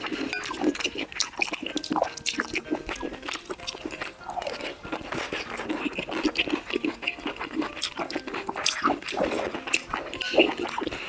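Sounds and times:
crunchy chewing: 0.0s - 11.0s
spoon clinking on glass bowl: 0.3s - 2.6s.

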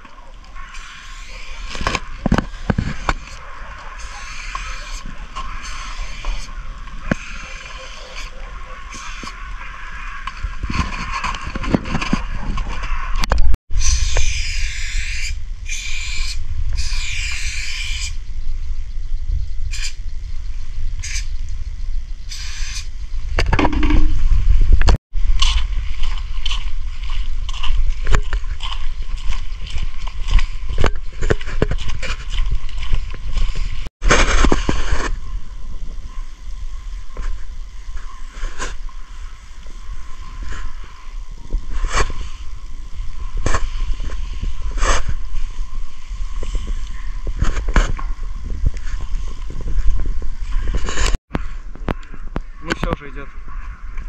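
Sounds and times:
wind rumble on microphone: 0.0s - 54.0s
footsteps on slushy icy road: 25.2s - 34.4s.

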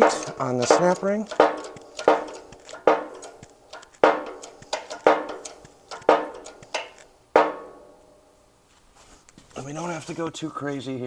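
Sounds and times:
light metal taps: 0.0s - 7.8s
metal-on-metal knocks ringing: 0.0s - 8.1s.

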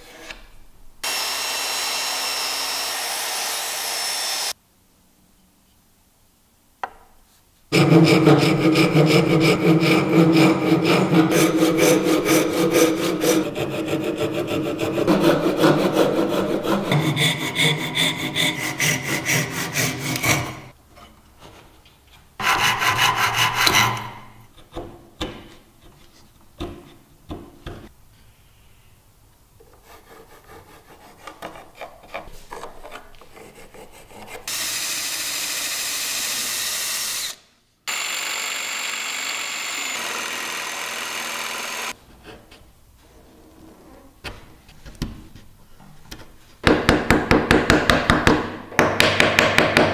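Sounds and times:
electric jigsaw whining: 1.0s - 4.6s, 34.5s - 42.0s
pull saw cutting wood: 1.0s - 4.6s, 7.7s - 20.7s, 22.4s - 24.2s, 33.3s - 42.0s
chisel scraping and tapping wood: 31.2s - 34.5s.

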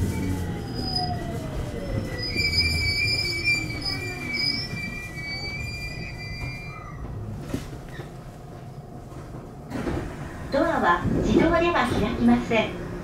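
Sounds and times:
train brake and wheel squeal: 0.0s - 7.0s.

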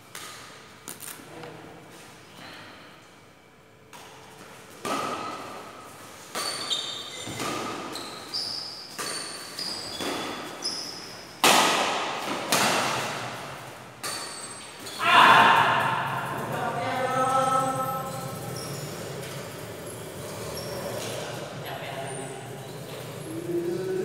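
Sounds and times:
racquets hitting shuttlecock: 3.9s - 10.6s, 11.4s - 15.8s
shoes squeaking on court: 4.3s - 11.4s, 14.0s - 15.0s, 16.9s - 23.3s.

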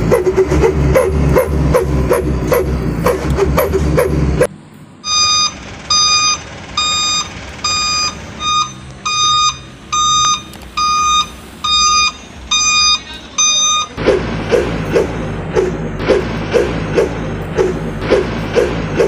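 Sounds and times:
electronic beeper beeping: 5.0s - 14.0s.

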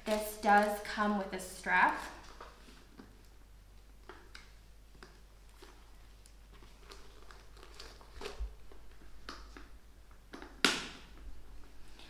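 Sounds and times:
tissue paper rustling and crinkling: 6.5s - 8.8s.

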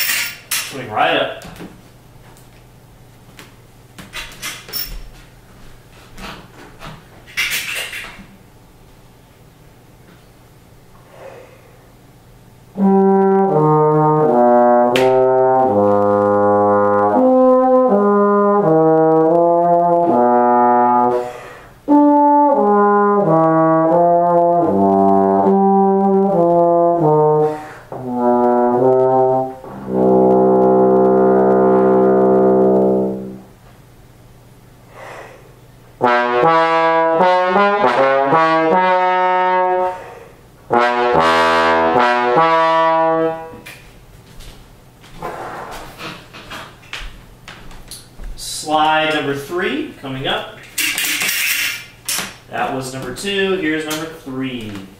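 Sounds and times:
bass trombone playing: 12.6s - 33.6s, 36.0s - 43.6s.

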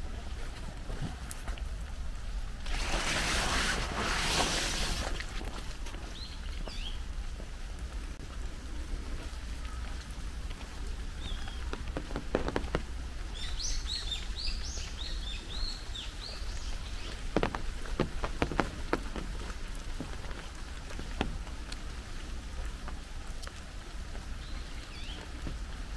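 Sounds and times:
rain falling on trees: 0.0s - 25.9s
sharp taps: 17.1s - 20.3s.

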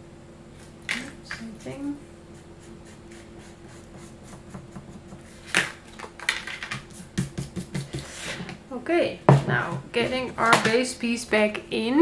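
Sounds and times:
card rubbing on cutting mat: 2.3s - 5.5s.

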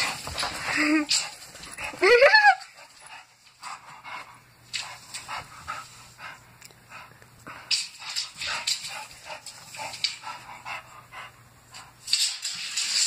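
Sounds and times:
dog panting and snuffling: 2.8s - 12.0s.

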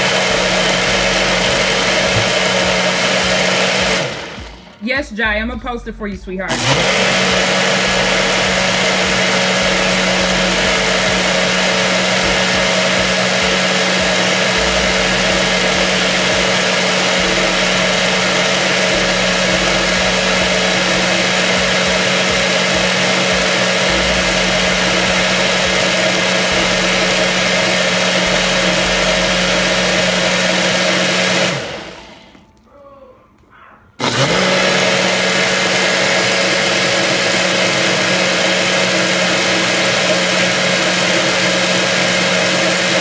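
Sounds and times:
blender whirring: 0.0s - 4.9s, 6.4s - 32.5s, 34.0s - 43.0s.

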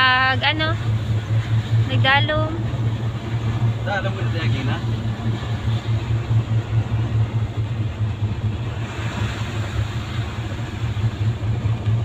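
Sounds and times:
road and engine rumble: 0.0s - 12.0s
rain and wet tyres hissing: 8.5s - 12.0s.

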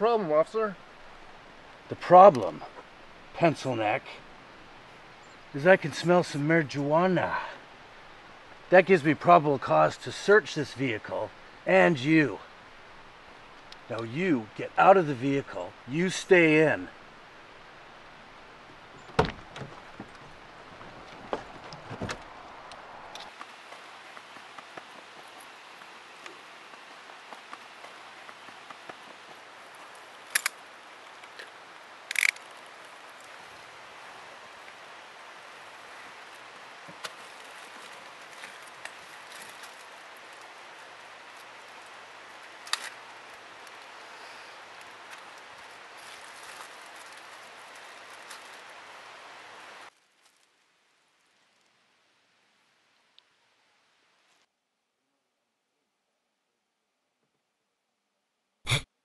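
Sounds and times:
steady outdoor hiss: 0.0s - 59.0s
faint ticks and rustles: 0.7s - 11.7s, 12.3s - 14.6s, 15.2s - 53.4s
low thump: 19.1s - 20.2s
small clicks: 30.3s - 30.6s, 32.1s - 33.3s.

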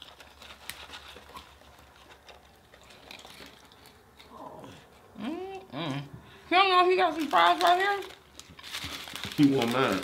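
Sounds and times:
paper wrappers being handled: 0.0s - 4.1s, 7.0s - 10.0s
food being chewed: 0.0s - 5.2s.

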